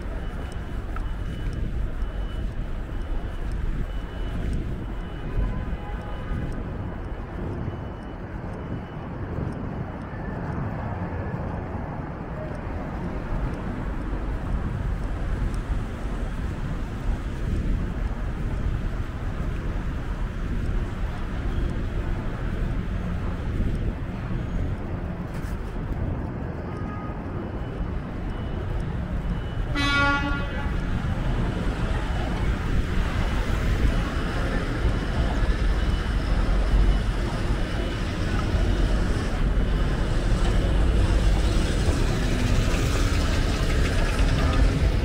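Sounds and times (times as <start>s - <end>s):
traffic rumble: 0.0s - 45.0s
car horn toot: 29.7s - 30.8s.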